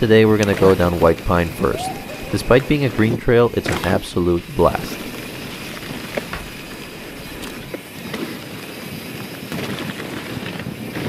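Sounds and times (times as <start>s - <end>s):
bike clicks and rattles: 0.0s - 11.0s
bike tyres rolling on dirt: 0.0s - 11.0s.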